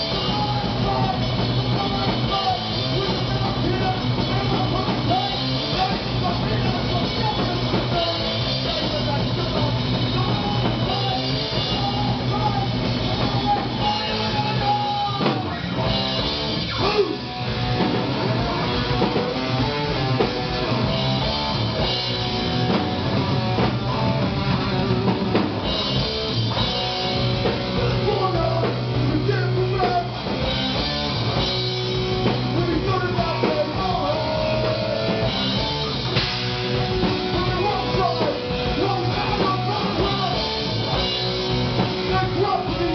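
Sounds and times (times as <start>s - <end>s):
person singing: 0.0s - 16.0s, 32.5s - 35.3s, 36.7s - 41.1s, 41.7s - 42.9s
drum kit: 0.0s - 42.9s
electric guitars: 0.0s - 42.9s.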